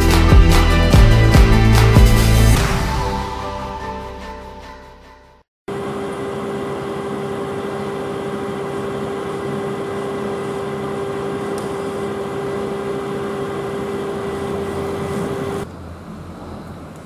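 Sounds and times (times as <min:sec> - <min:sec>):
whining hum: 0:05.7 - 0:17.0.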